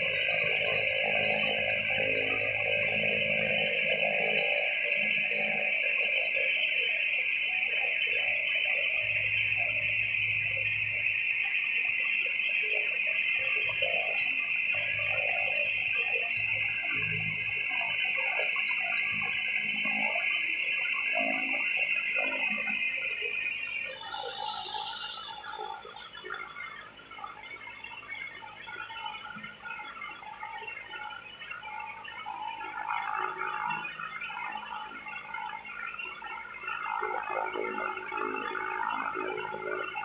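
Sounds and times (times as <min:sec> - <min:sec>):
turboprop engine whine: 0:00.0 - 0:06.5.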